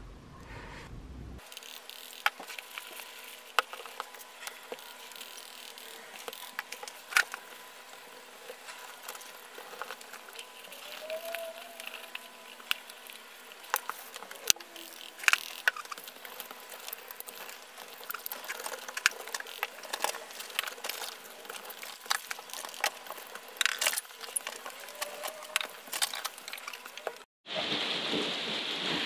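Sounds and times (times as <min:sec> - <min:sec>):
rain drumming on a roof: 0:27.4 - 0:29.0.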